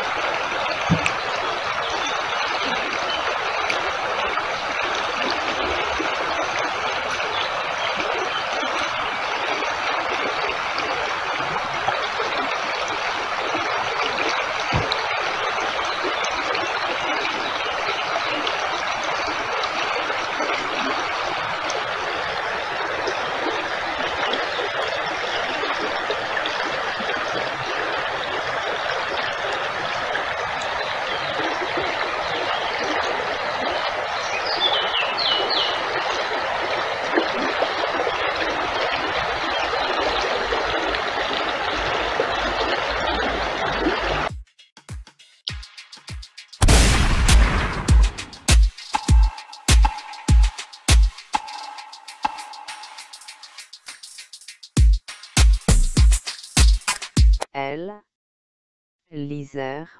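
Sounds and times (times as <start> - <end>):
stream running water: 0.0 - 44.3, 45.5 - 57.2.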